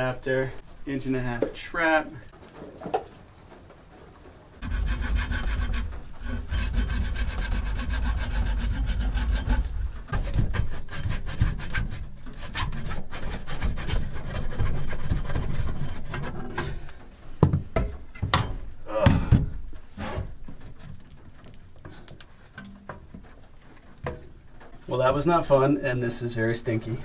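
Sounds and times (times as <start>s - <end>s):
hand saw cutting plastic pipe: 4.6s - 16.6s.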